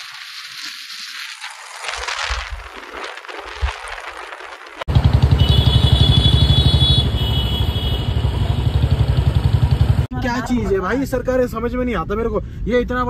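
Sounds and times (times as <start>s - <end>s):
road traffic noise: 4.5s - 11.2s
loud vehicle engine running: 4.9s - 10.1s.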